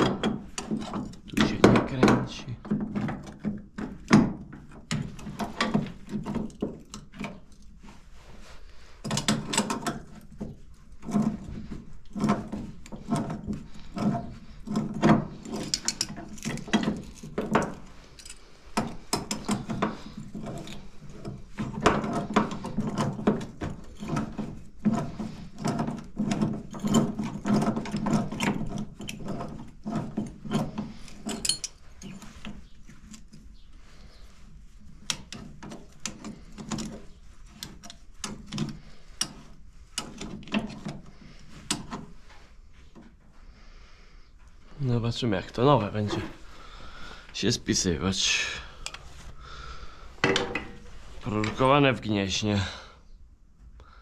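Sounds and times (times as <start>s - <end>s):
hand tools clinking on metal: 12.1s - 32.3s.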